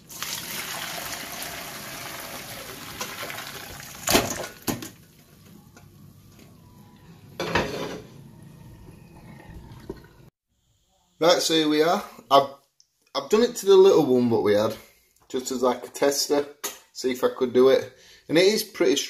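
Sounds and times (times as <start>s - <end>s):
water pouring into a colander: 0.0s - 4.7s.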